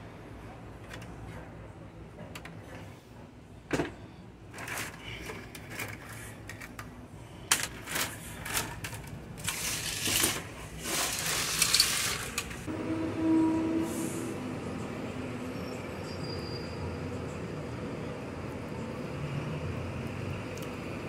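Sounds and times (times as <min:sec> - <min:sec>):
circuit boards clattering: 0:07.5 - 0:12.7.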